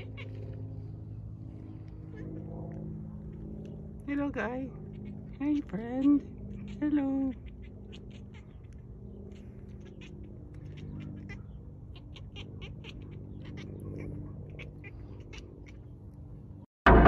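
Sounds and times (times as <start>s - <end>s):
cat chirping: 0.0s - 0.4s, 4.7s - 15.9s
low background hum: 0.0s - 17.0s.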